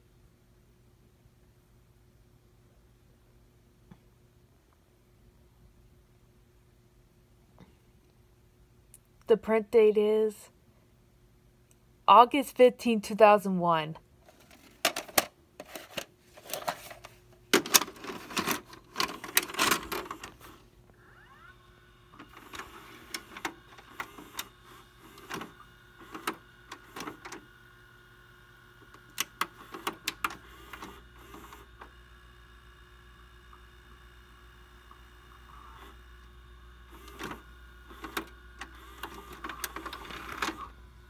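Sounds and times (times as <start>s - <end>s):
plastic cassette clatter: 14.3s - 20.5s, 29.0s - 30.9s
tape mechanism whirring: 14.9s - 32.4s, 34.8s - 41.0s.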